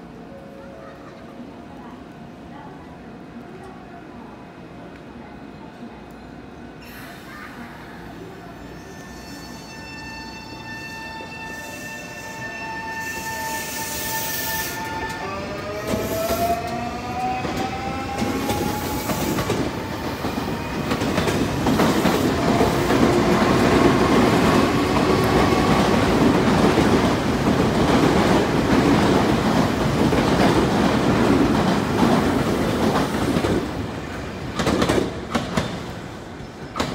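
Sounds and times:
wheels rumbling and clattering on rails: 0:15.0 - 0:36.9.

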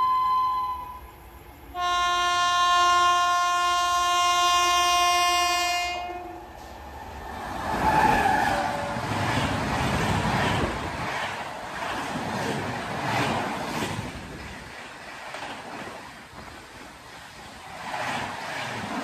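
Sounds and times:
locomotive horn blast: 0:01.7 - 0:06.6
train rushing past: 0:05.6 - 0:19.0.

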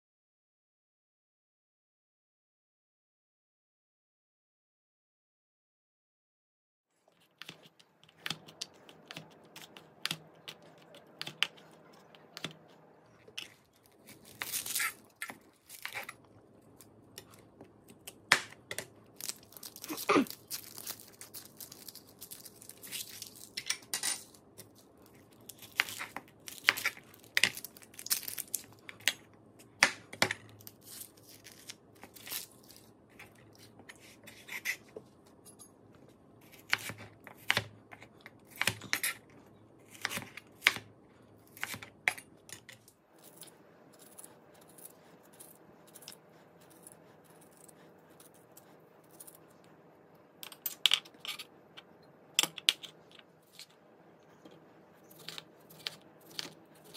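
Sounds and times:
papery skins tearing: 0:13.9 - 0:16.2, 0:19.2 - 0:23.6.

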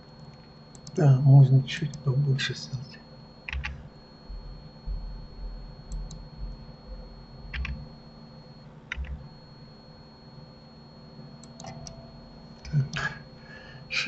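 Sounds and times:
faint high whine: 0:00.0 - 0:14.0
low hum: 0:00.0 - 0:14.0
keyboard and mouse clicks: 0:00.3 - 0:01.0, 0:03.5 - 0:03.8, 0:05.9 - 0:06.2, 0:07.5 - 0:07.8, 0:08.9 - 0:09.2, 0:11.4 - 0:12.0.

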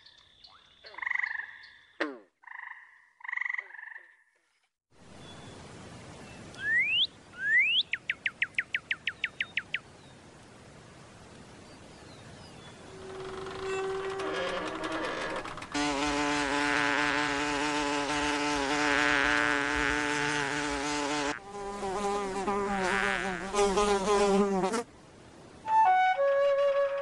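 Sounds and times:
fly buzzing: 0:12.9 - 0:24.9
flute notes: 0:25.6 - 0:27.0.

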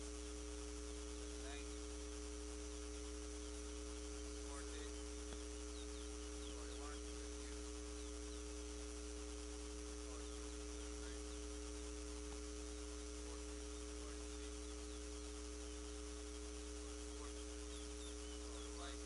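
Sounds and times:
low electrical hum: 0:00.0 - 0:19.0
high bird chirps: 0:04.7 - 0:08.6, 0:16.9 - 0:19.0.

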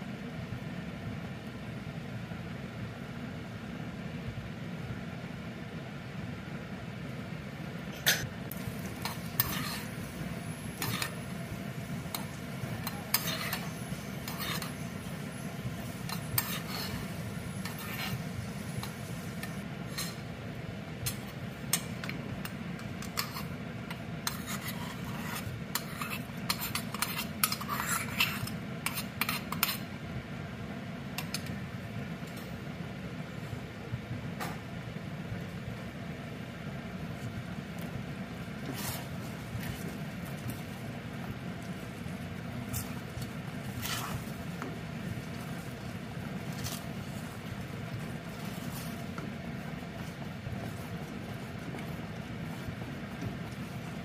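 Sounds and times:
steady low hum: 0:00.0 - 0:54.0
utensils clinking and scraping pans: 0:08.0 - 0:20.3, 0:21.1 - 0:29.8
nuts frying in oil: 0:08.2 - 0:29.9.

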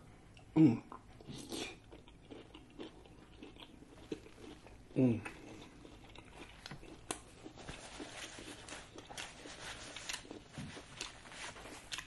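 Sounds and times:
soft chewing: 0:00.2 - 0:12.0
paper napkin rustling: 0:07.5 - 0:12.0.

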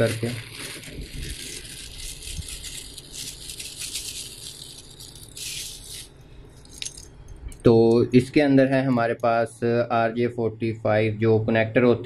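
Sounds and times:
metal clips rattling and clinking: 0:00.6 - 0:07.6.

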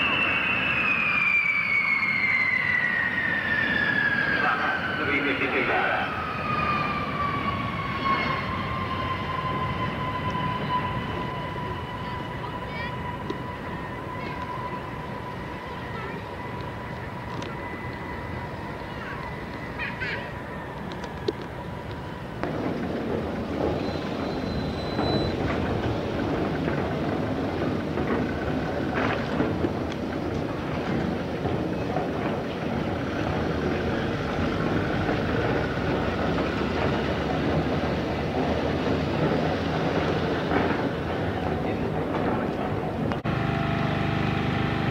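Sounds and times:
jet engines passing low: 0:00.0 - 0:44.9.

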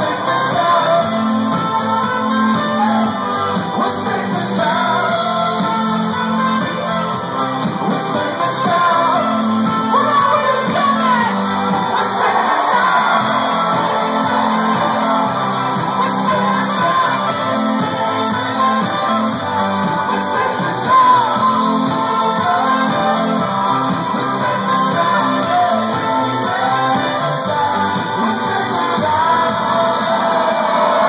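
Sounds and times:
pulsing bass line: 0:00.0 - 0:30.2
live band playing: 0:00.0 - 0:31.0
person singing: 0:00.0 - 0:31.0
crowd shouting: 0:10.0 - 0:31.0.

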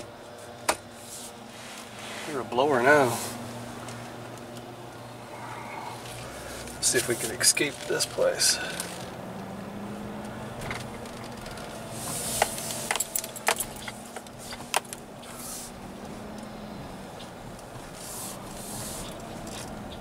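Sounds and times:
truck cab engine hum: 0:00.0 - 0:20.0
light clicks and rattles: 0:10.2 - 0:11.8.

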